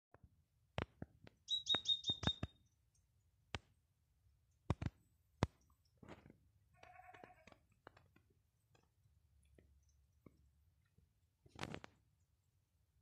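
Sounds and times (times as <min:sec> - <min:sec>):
bird chirping high: 0:01.5 - 0:02.6.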